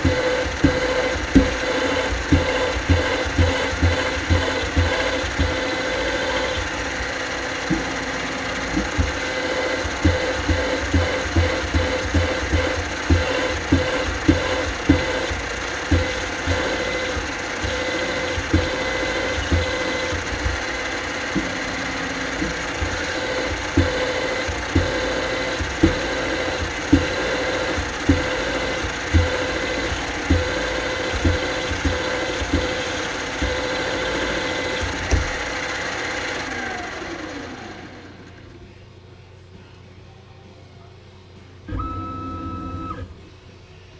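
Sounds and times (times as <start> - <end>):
drill bit knocking metal: 0.0 - 36.7
mill motor running: 0.0 - 38.8, 41.6 - 43.2.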